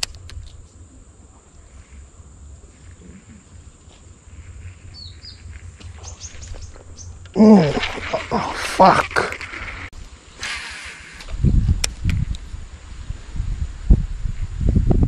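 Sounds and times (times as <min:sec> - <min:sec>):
low steady rumble: 0:00.1 - 0:08.6
faint bird chirps: 0:02.7 - 0:07.2.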